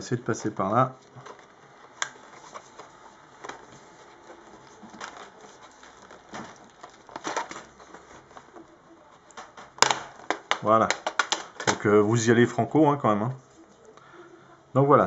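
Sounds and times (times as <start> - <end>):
plastic clips clicking and cracking: 0.0 - 12.0.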